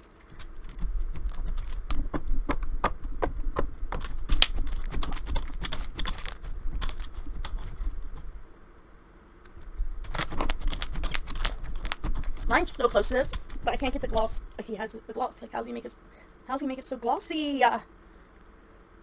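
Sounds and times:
slime clicking and popping: 0.2s - 7.7s, 10.1s - 12.5s.

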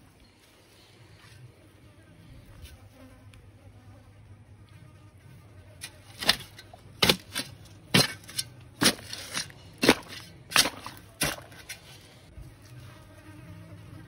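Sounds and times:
spade striking soil: 5.8s - 12.0s.

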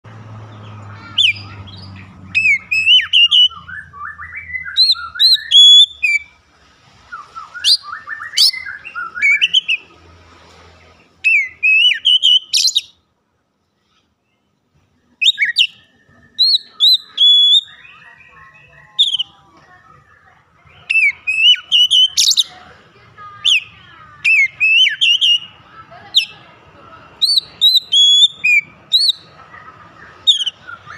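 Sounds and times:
bird singing whistled phrases: 1.0s - 6.4s, 7.1s - 9.9s, 11.2s - 13.0s, 15.2s - 19.4s, 20.0s - 22.5s, 23.4s - 25.6s, 27.2s - 30.9s.

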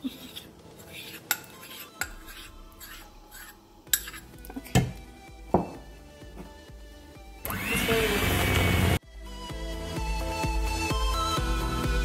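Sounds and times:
metal spoon clinking on a mug: 3.9s - 4.2s.

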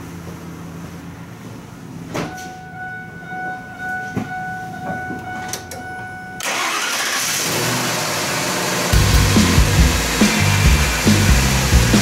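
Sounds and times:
steady high key-on tone: 2.3s - 6.4s
starter cranking engine: 6.4s - 12.0s
truck engine running: 6.4s - 12.0s.

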